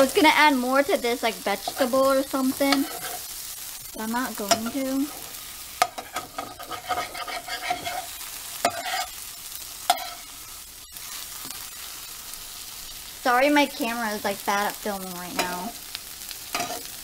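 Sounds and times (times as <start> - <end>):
eggs and sausage sizzling: 0.0 - 17.0
utensil scraping and knocking pan: 2.5 - 3.2, 5.8 - 9.1.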